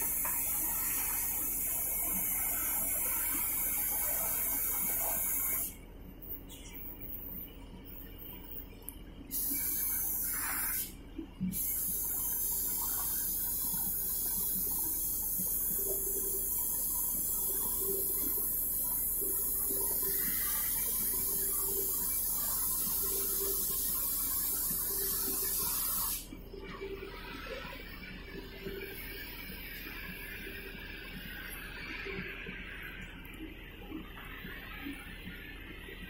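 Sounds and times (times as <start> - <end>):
cutting torch hissing: 19.3 - 26.2.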